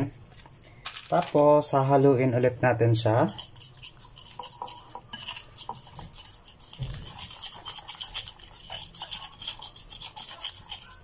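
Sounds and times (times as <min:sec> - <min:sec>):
fork stirring batter in bowl: 0:03.0 - 0:11.0.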